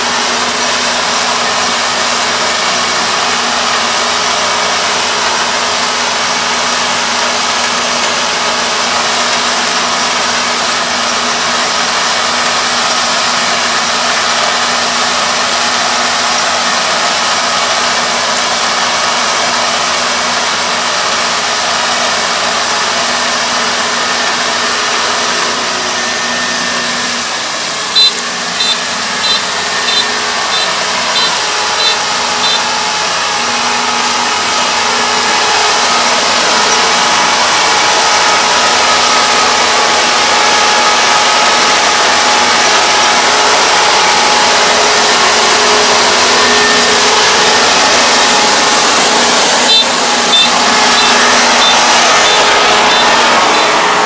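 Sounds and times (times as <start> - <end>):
combine harvester running: 0.0 - 54.0
short high beeps: 27.9 - 32.8, 49.7 - 53.8.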